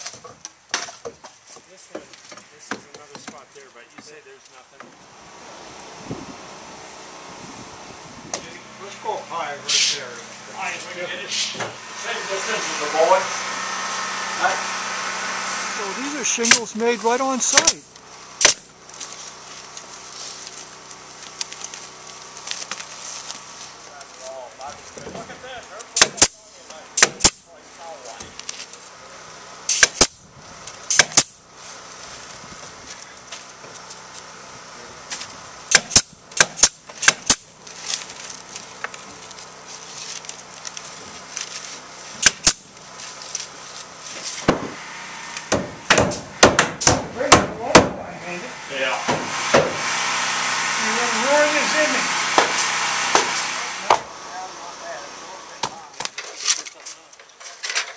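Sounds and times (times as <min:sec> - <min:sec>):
pneumatic nail gun firing: 0:11.4 - 0:16.7, 0:17.4 - 0:18.7, 0:26.0 - 0:26.4, 0:27.0 - 0:27.5, 0:29.7 - 0:30.2, 0:30.8 - 0:31.4, 0:35.1 - 0:37.5, 0:42.2 - 0:42.7, 0:44.4 - 0:48.0, 0:49.0 - 0:54.1
nail gun shot: 0:18.4 - 0:18.7, 0:26.0 - 0:26.4, 0:27.0 - 0:27.4, 0:29.7 - 0:30.2, 0:30.9 - 0:31.4, 0:35.7 - 0:37.5, 0:42.2 - 0:42.6, 0:45.4 - 0:48.0, 0:49.1 - 0:49.8
hammer blows on wood: 0:49.0 - 0:50.1, 0:52.0 - 0:54.1
shingles clattering and rustling: 0:56.0 - 0:57.9.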